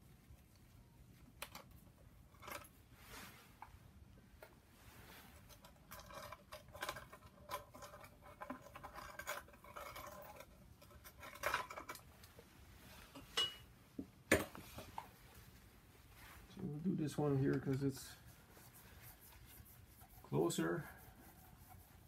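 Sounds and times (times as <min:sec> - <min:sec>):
fabric rubbing on microphone: 0:02.8 - 0:03.8, 0:04.7 - 0:05.5, 0:14.6 - 0:22.0.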